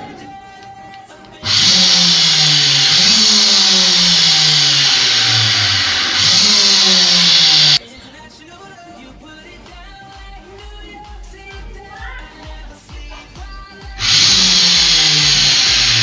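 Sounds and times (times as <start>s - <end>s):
electric motor whirring: 1.4s - 7.8s, 14.0s - 16.0s.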